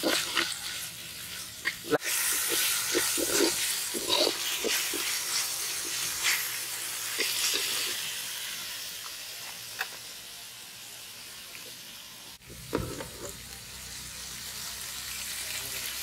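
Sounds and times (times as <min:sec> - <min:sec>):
metal ladle scraping a pot: 0:00.0 - 0:06.5
onions sizzling in hot oil: 0:00.0 - 0:16.0.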